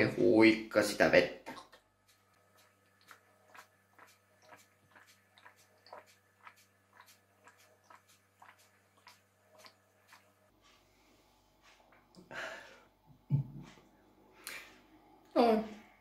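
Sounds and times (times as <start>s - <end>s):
person gulping water: 1.4s - 1.8s, 2.9s - 10.3s.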